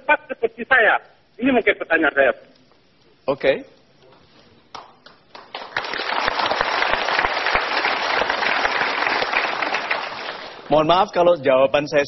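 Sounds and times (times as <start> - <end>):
audience applauding: 4.7 - 10.7.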